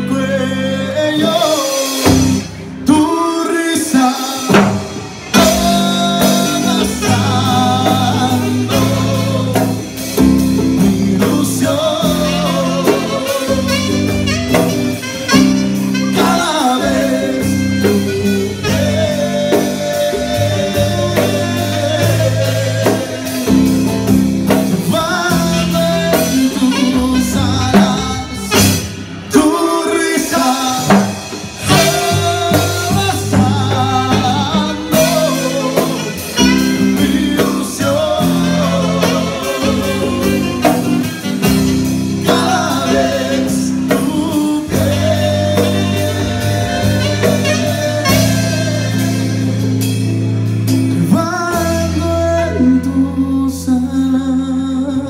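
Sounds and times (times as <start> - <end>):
electric bass line: 0.0 - 3.3, 4.4 - 55.0
saxophone melody: 5.3 - 29.4, 31.6 - 50.9.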